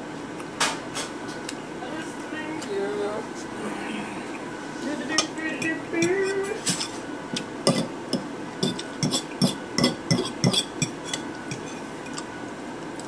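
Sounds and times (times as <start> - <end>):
fork scraping on plate: 6.0 - 7.0, 8.6 - 12.2.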